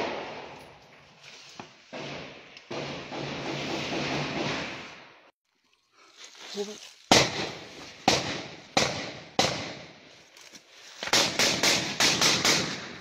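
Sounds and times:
rifle shots with echo: 0:07.1 - 0:10.0, 0:11.1 - 0:13.0.

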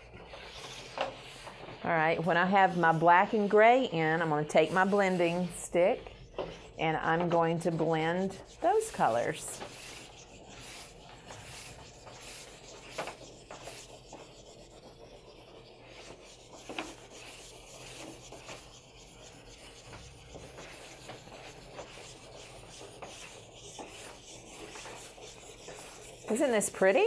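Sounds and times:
chalk pastel rubbing on paper: 0:00.0 - 0:27.0.

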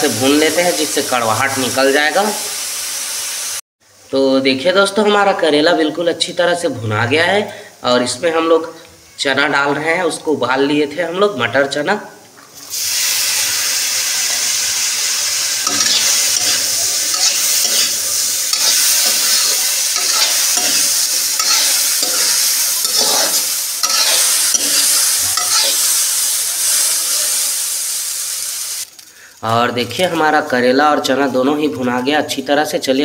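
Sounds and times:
food sizzling in hot oil: 0:00.0 - 0:05.5, 0:12.5 - 0:33.0
metal spatula scraping pan: 0:15.6 - 0:25.9.

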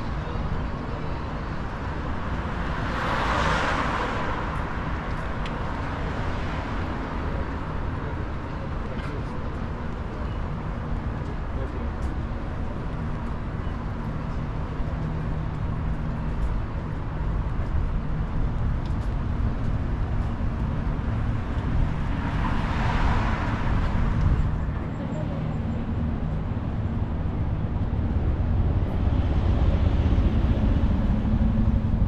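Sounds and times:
road traffic rumble: 0:00.0 - 0:32.0
vehicle tyre noise: 0:14.3 - 0:32.0.

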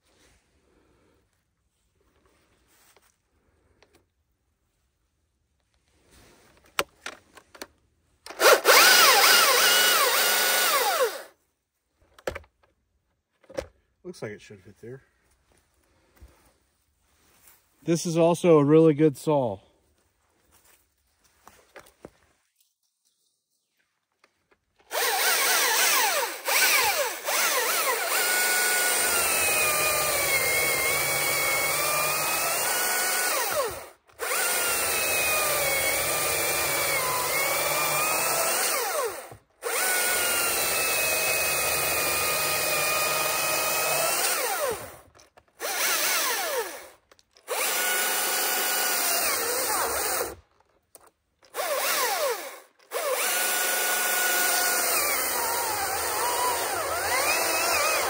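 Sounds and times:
chainsaw cutting wood: 0:08.3 - 0:11.4, 0:24.8 - 0:58.0.

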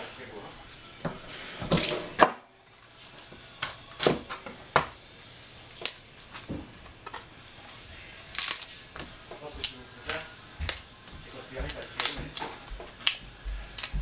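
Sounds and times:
leaves snapping off: 0:05.8 - 0:06.1, 0:08.3 - 0:10.9, 0:11.6 - 0:14.0.

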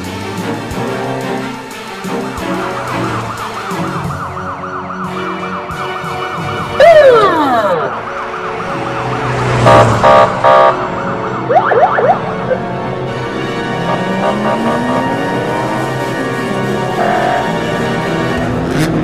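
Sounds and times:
police siren wailing: 0:02.1 - 0:18.6
tone sweeping downward: 0:06.7 - 0:17.7.

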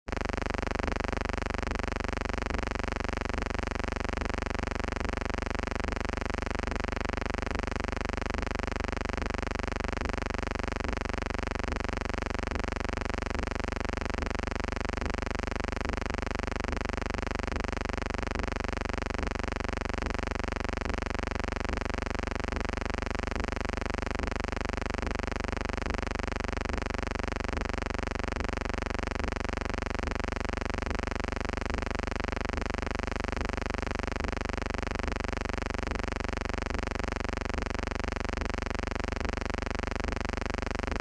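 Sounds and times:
electrical hum: 0:00.1 - 0:14.4.

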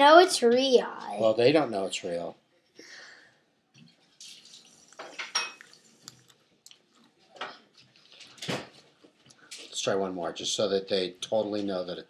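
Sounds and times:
spoon and tableware clinking: 0:05.0 - 0:05.7.

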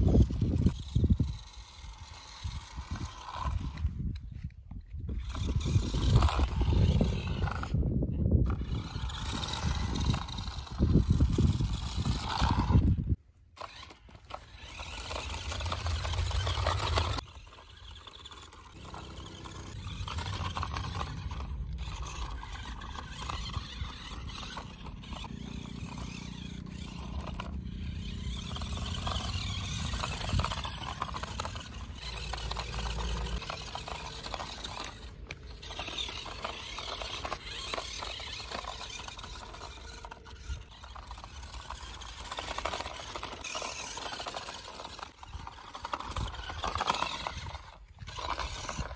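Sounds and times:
toy truck motor whirring: 0:00.0 - 0:48.9
plastic body and tyres rattling: 0:13.6 - 0:48.9.

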